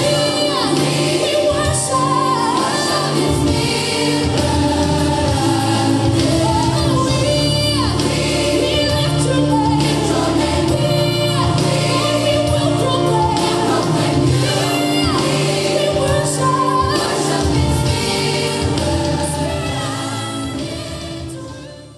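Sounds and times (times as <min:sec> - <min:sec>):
gospel choir singing: 0:00.0 - 0:21.9.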